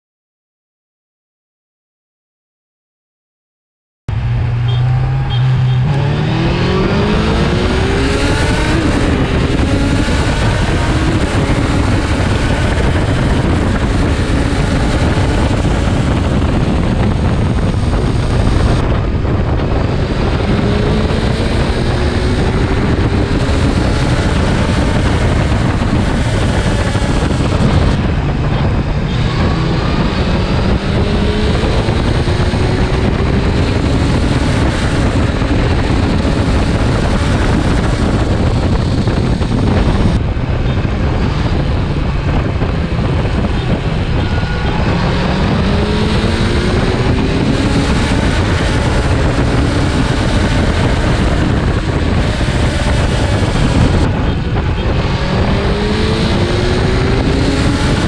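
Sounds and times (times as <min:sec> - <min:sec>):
heavy wind noise: 0:04.1 - 0:58.0
motorcycle engines accelerating: 0:04.1 - 0:58.0.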